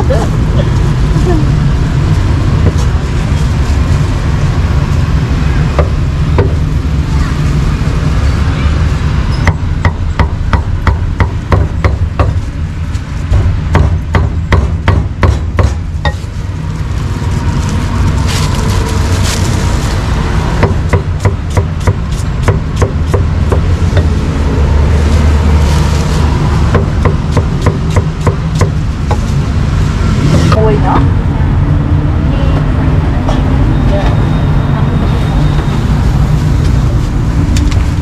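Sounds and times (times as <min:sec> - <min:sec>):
steady low rumble: 0:00.0 - 0:38.0
cleaver chopping on a board: 0:13.3 - 0:16.2.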